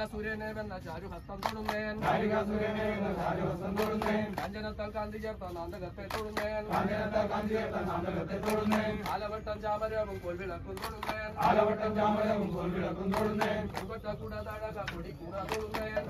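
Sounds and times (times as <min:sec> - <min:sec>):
men chanting: 0:01.0 - 0:16.0.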